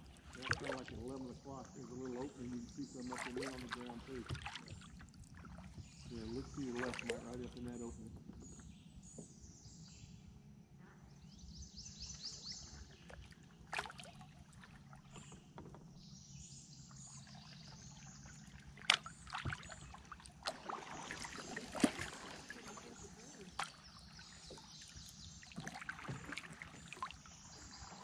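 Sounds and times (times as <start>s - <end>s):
paddle water swishing: 0.0s - 8.6s, 12.5s - 15.5s, 16.8s - 28.0s.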